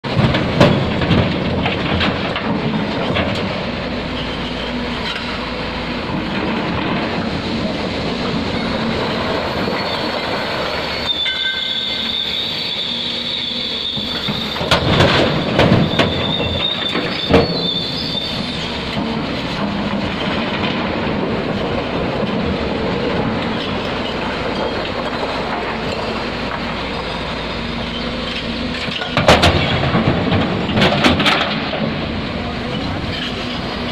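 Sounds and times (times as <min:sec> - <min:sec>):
excavator engine and hydraulics: 0:00.0 - 0:33.9
high squeal: 0:09.4 - 0:18.8.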